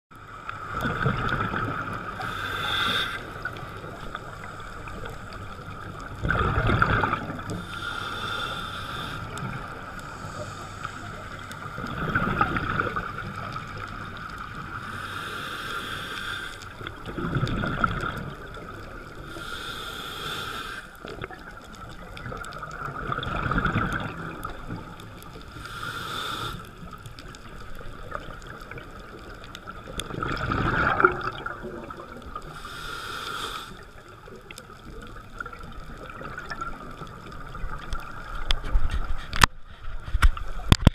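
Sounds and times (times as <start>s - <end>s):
exhaled bubbles rushing: 0.6s - 2.4s, 3.2s - 7.7s, 11.4s - 14.7s, 16.8s - 19.3s, 21.1s - 25.2s, 27.7s - 32.6s, 34.5s - 38.9s
regulator inhalation hiss: 2.2s - 3.4s, 7.6s - 11.6s, 14.8s - 16.7s, 19.3s - 21.0s, 25.5s - 26.9s, 32.5s - 33.9s.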